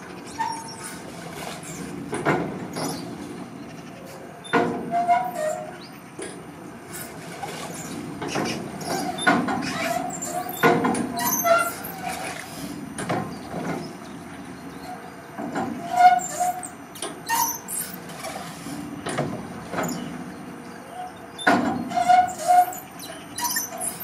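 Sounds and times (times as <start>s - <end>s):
rusty linkage squeaking and creaking: 0.3s - 1.9s, 4.4s - 6.3s, 7.7s - 12.4s, 14.8s - 18.6s, 21.4s - 24.0s.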